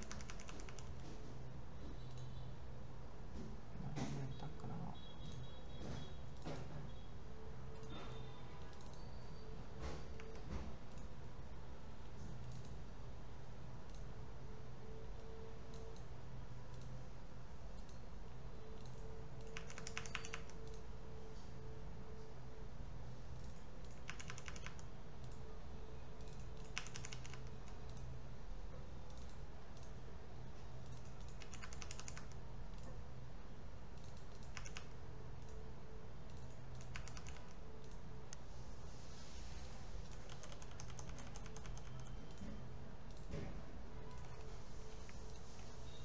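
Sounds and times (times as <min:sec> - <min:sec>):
keyboard and mouse clicks: 0:00.0 - 0:02.4, 0:07.7 - 0:09.1, 0:09.7 - 0:11.2, 0:12.2 - 0:12.8, 0:13.8 - 0:14.1, 0:15.2 - 0:16.1, 0:16.7 - 0:17.0, 0:17.7 - 0:18.1, 0:18.7 - 0:20.9, 0:23.3 - 0:25.5, 0:26.2 - 0:30.1, 0:30.8 - 0:33.0, 0:33.9 - 0:35.6, 0:36.2 - 0:38.4, 0:40.0 - 0:46.0.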